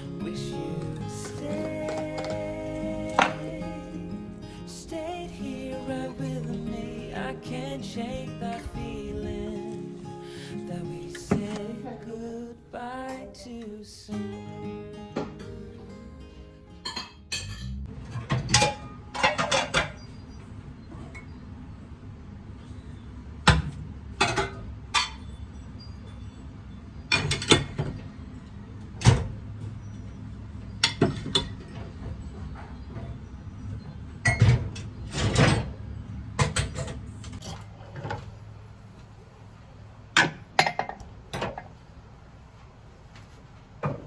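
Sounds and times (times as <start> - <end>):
dishes clinking: 1.1 - 3.6, 16.8 - 20.3, 24.2 - 26.2, 34.2 - 35.7, 40.2 - 41.7.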